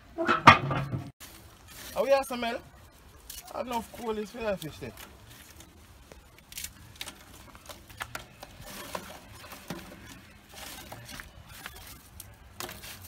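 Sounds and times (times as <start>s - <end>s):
rustling: 0.7s - 13.0s
charcoal clinking in metal firebox: 6.5s - 13.0s.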